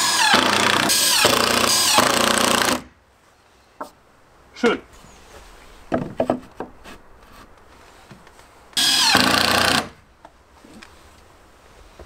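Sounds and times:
knocks of handling a board: 5.9s - 6.8s
drill-driver driving a screw: 8.8s - 9.9s.

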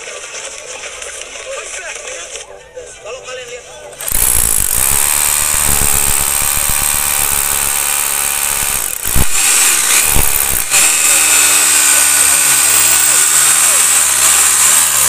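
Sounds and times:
hammer drill boring into concrete: 4.0s - 15.0s.

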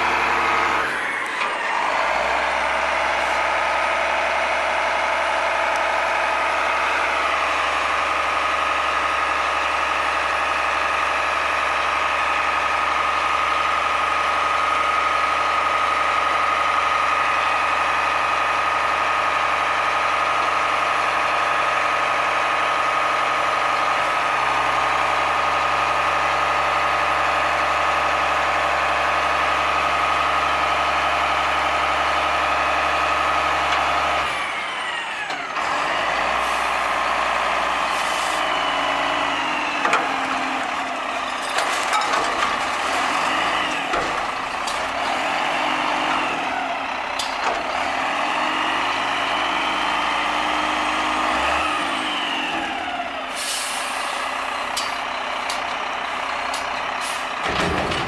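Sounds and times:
truck engine idling: 0.0s - 58.0s.

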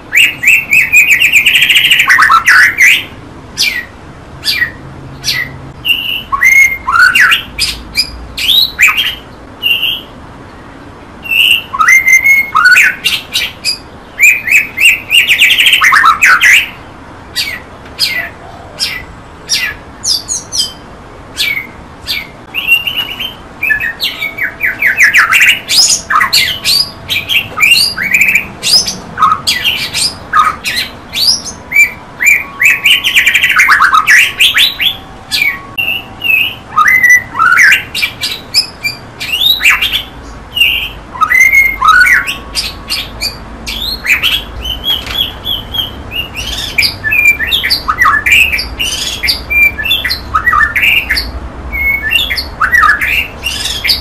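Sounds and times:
songbird singing varied song: 0.0s - 54.0s.

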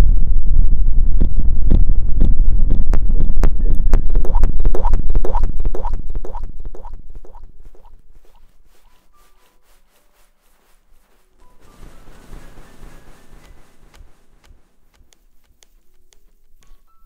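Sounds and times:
rapid sharp clicks: 11.4s - 16.9s.

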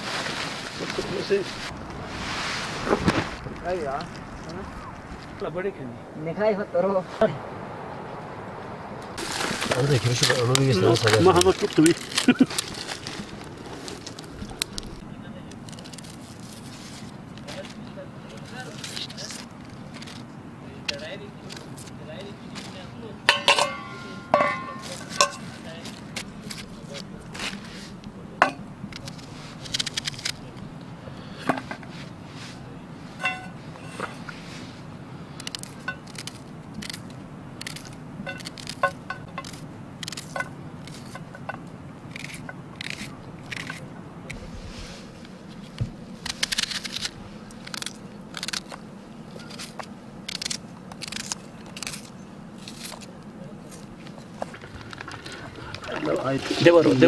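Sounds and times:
low steady hum: 0.2s - 18.7s.

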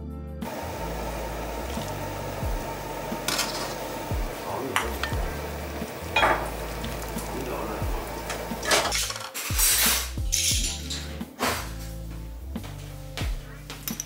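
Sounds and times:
water boiling and bubbling: 0.4s - 9.0s
metal utensil clinking on pot: 6.1s - 6.6s.

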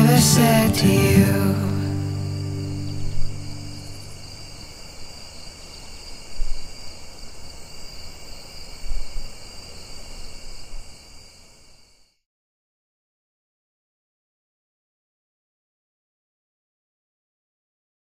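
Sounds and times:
acoustic guitar chord ringing: 0.0s - 4.7s
crickets chirring: 0.0s - 12.2s.

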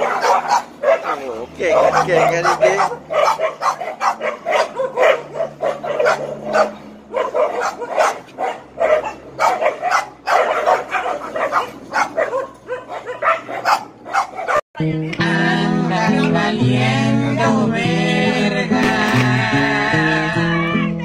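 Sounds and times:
dogs barking rapidly: 0.0s - 14.6s.

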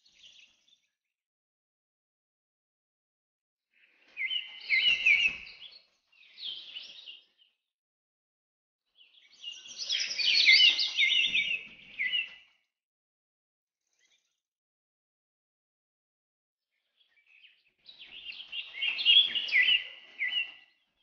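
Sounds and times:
birds chirping: 4.2s - 7.3s, 9.0s - 12.4s, 17.4s - 20.9s.

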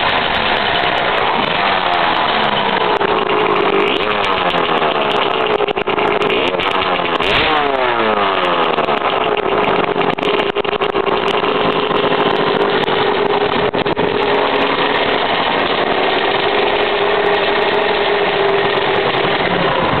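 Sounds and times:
two-stroke engine idling: 0.0s - 20.0s.

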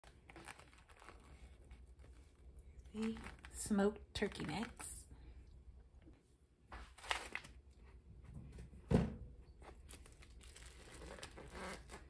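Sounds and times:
plastic wrap crinkling: 0.0s - 5.0s, 6.9s - 7.7s, 9.6s - 12.0s.

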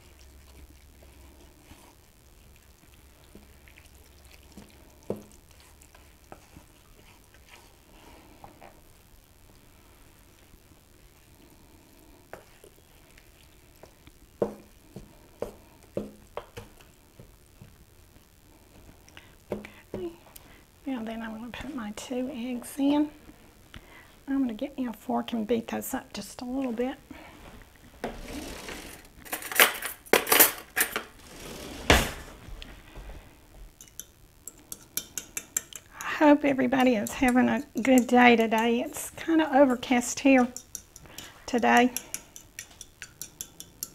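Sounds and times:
wooden spoon stirring batter: 0.0s - 23.4s, 33.8s - 43.9s
cutlery and dishes clinking: 29.3s - 31.1s
spoon knocking against bowl: 40.4s - 43.9s.

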